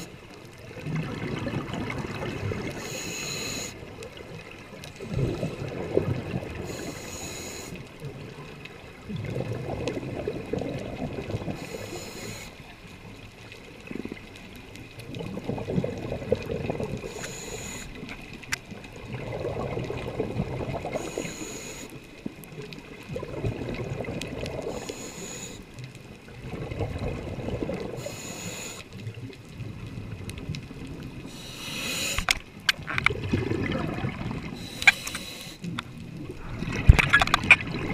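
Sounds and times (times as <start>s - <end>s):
exhaled bubbles burbling: 0.6s - 2.9s, 3.8s - 6.8s, 8.0s - 11.8s, 13.8s - 17.2s, 18.0s - 21.2s, 22.2s - 24.8s, 26.2s - 28.2s, 32.6s - 34.9s, 35.6s - 37.9s
regulator hiss on inhale: 2.7s - 3.8s, 6.6s - 7.9s, 11.6s - 12.6s, 17.0s - 18.1s, 20.9s - 22.0s, 24.6s - 25.7s, 28.0s - 29.0s, 31.2s - 32.4s, 34.6s - 35.7s.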